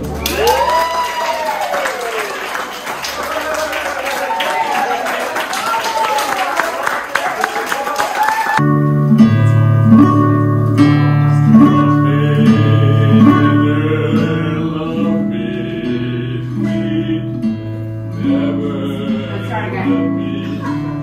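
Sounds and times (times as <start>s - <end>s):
acoustic guitar music with bass: 8.6s - 21.0s.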